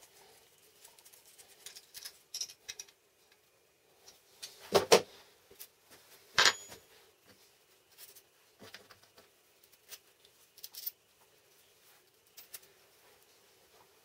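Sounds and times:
wrench set down on workbench: 6.4s - 6.8s.

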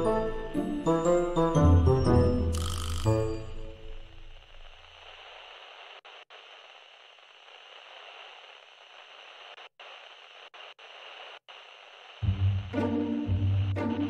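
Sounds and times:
faint static hiss: 0.0s - 14.0s.

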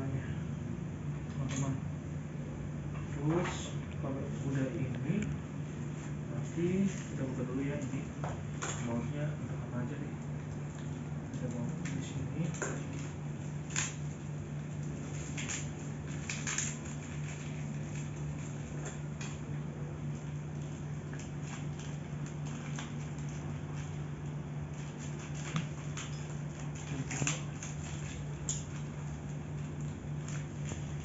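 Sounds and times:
plastic film crinkling and tearing: 10.8s - 19.1s, 20.2s - 31.0s.

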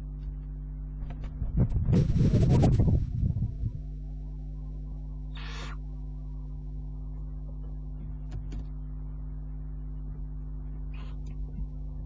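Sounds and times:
owl hissing screech: 5.3s - 5.8s.

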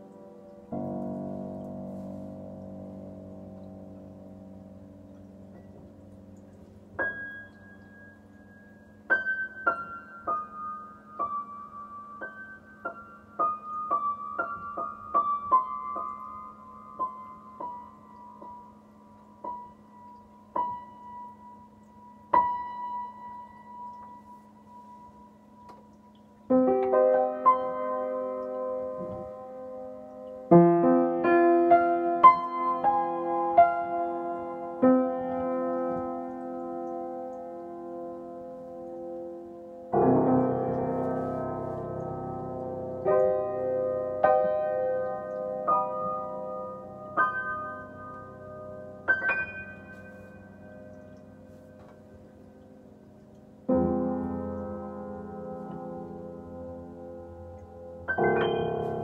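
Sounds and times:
loud piano chords: 0.0s - 59.0s
piano high single notes: 53.7s - 59.0s.

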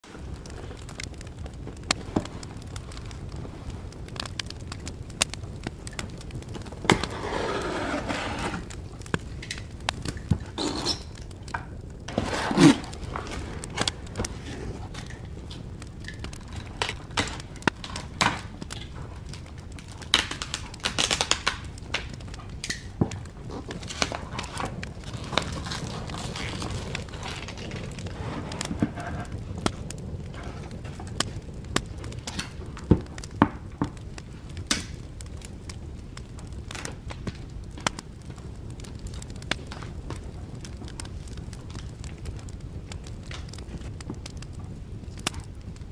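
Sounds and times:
cardboard scraping: 6.9s - 8.8s, 12.1s - 15.0s, 28.1s - 29.3s
cardboard tearing: 12.1s - 14.8s
cardboard box being unpacked: 12.1s - 15.0s.

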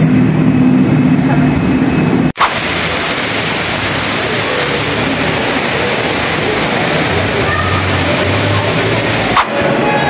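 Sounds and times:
street traffic noise: 0.0s - 10.0s
vehicle engine running: 0.0s - 10.0s
fountain water pouring into pool: 2.4s - 9.6s.

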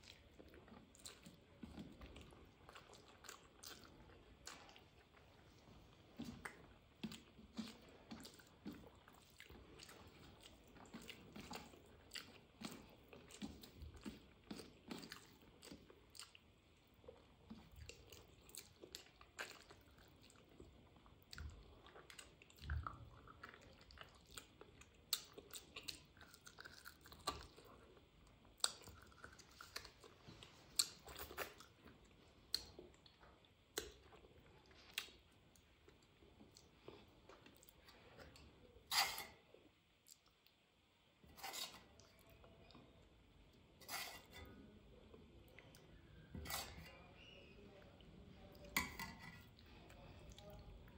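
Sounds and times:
person chewing food: 0.0s - 40.6s.

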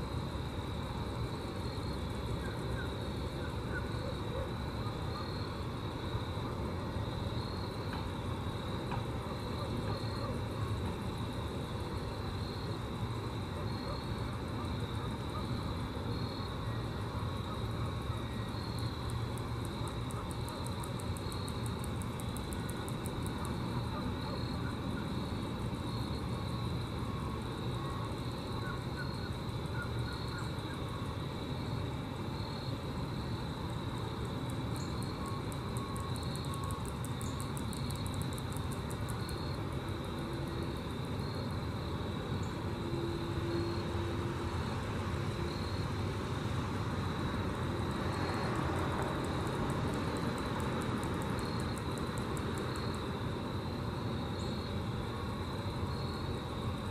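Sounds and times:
grasshoppers stridulating: 0.0s - 56.9s.

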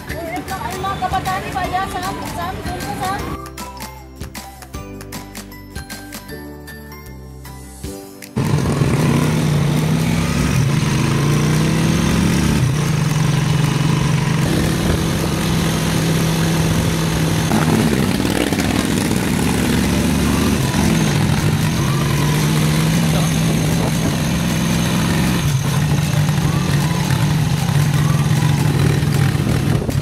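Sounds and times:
motorcycle engine running: 8.4s - 30.0s.

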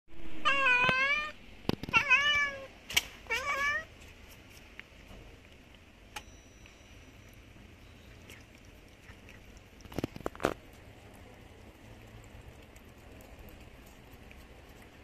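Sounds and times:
cat meowing: 0.4s - 2.7s, 3.3s - 3.9s.

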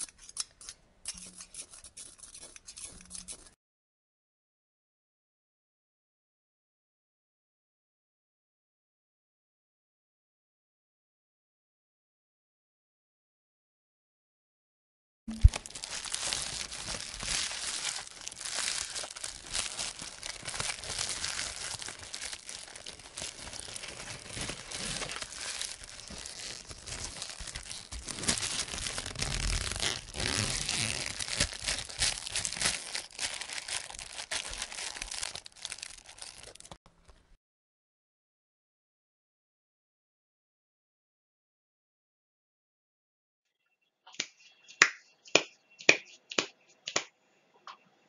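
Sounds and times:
rustling and crackling with clicks: 15.3s - 37.3s.

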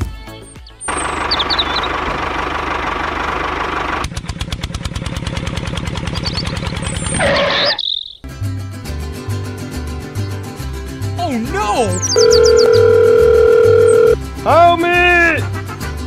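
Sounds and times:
tractor engine running: 0.8s - 7.3s, 12.0s - 14.2s.

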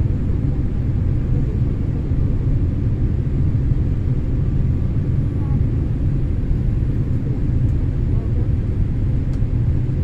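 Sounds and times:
airliner cabin engine rumble: 0.0s - 10.0s.

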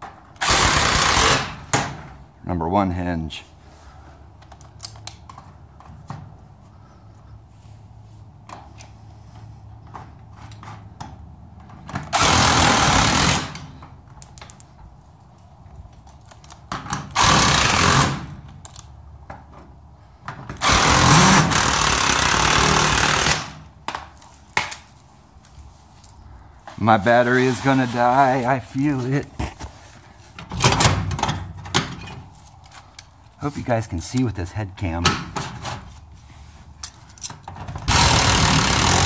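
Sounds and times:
small clicks and handling: 4.4s - 6.0s, 13.8s - 17.1s, 18.5s - 19.0s
impact driver hammering: 20.6s - 24.0s, 37.9s - 39.0s.

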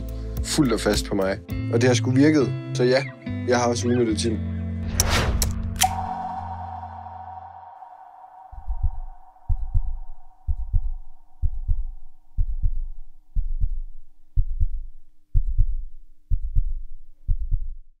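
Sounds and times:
higher tone: 5.8s - 12.2s
steady low hum: 6.4s - 17.7s
low double heartbeat thump: 8.6s - 17.9s.

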